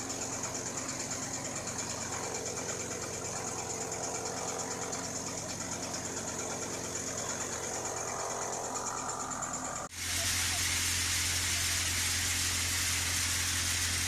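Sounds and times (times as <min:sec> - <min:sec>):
thresher fan hissing: 0:00.0 - 0:14.0
thresher mechanical rattle: 0:00.0 - 0:14.0.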